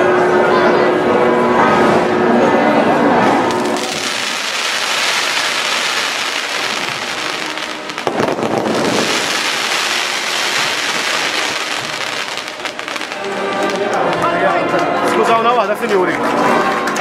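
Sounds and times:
fireworks crackling and bursting: 3.4s - 15.2s.

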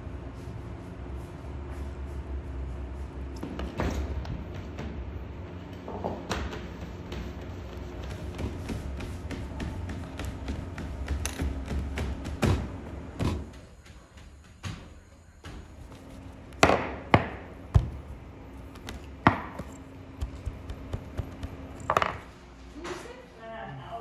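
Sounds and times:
bread tools knocking on dough and table: 14.6s - 18.1s, 18.7s - 22.3s.

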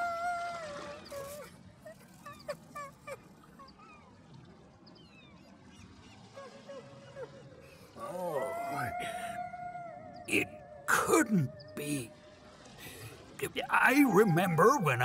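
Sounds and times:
wailing animal call: 6.7s - 12.1s.

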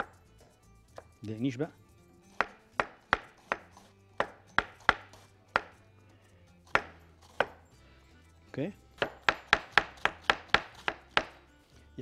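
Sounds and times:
knife chopping on wooden board: 2.3s - 5.8s, 6.7s - 7.7s, 9.0s - 11.5s.

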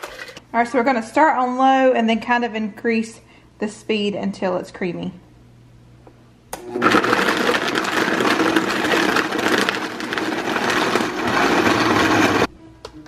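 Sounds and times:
blender switch click: 6.5s - 6.7s
blender crushing ice: 6.6s - 12.5s.

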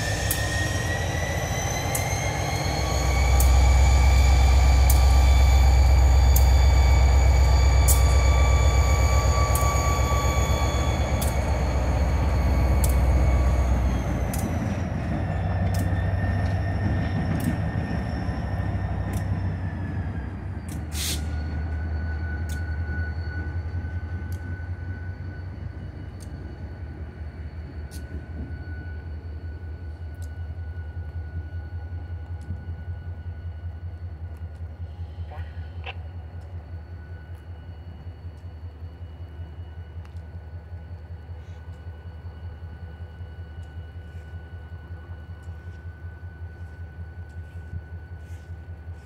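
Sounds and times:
locomotive engine rumble and whine: 0.0s - 49.0s
sharp clicks from locomotive: 0.0s - 49.0s.

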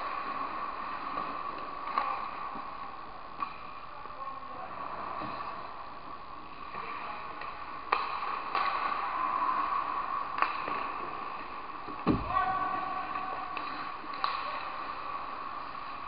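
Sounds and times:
hockey sticks and puck clacking: 0.0s - 2.8s, 3.4s - 3.8s, 6.7s - 12.4s, 13.0s - 15.7s.

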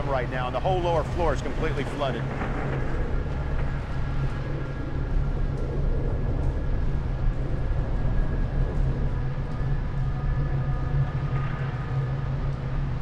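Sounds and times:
hurricane wind rumbling: 0.0s - 13.0s.

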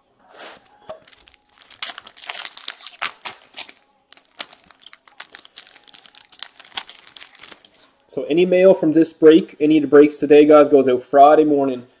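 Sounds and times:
foil wrapper crinkling and tearing: 0.4s - 8.0s.

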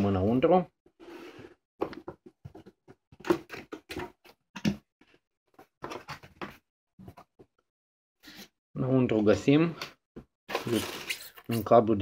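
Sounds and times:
cardboard box being opened: 10.5s - 11.6s.

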